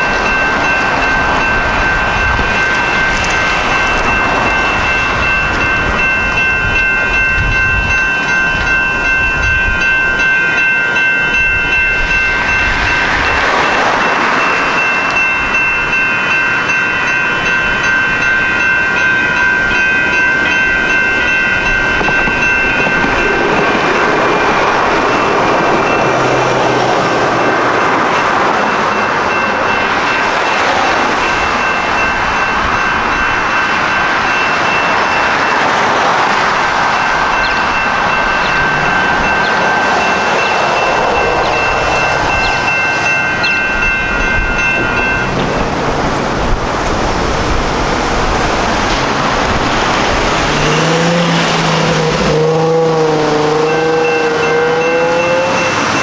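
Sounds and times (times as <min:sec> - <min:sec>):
crossing warning bells ringing: 0:00.0 - 0:56.0
light rail train rumbling: 0:00.0 - 0:56.0
road traffic: 0:00.0 - 0:56.0
vehicle accelerating: 0:44.8 - 0:56.0.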